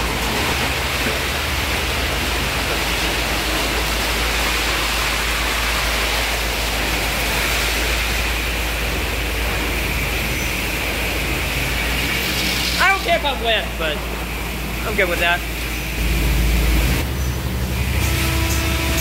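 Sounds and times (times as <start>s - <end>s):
brushes scrubbing with water spray: 0.0s - 13.8s
low machinery hum: 0.0s - 19.0s.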